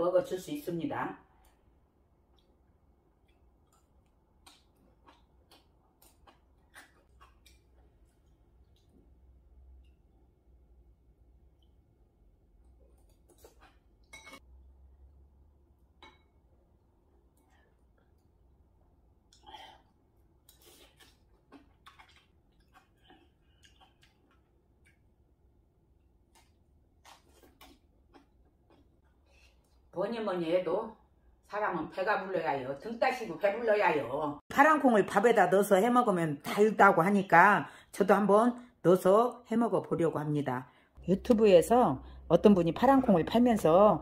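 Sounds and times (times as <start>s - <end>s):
low room hum: 1.0s - 30.1s
person chewing food: 1.4s - 10.4s, 11.4s - 14.2s, 17.0s - 29.9s.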